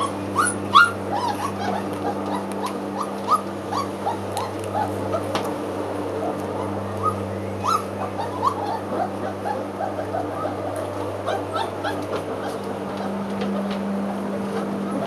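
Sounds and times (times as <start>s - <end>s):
lawn mower running: 0.0s - 15.0s
puppies whimpering and yipping: 0.0s - 15.0s.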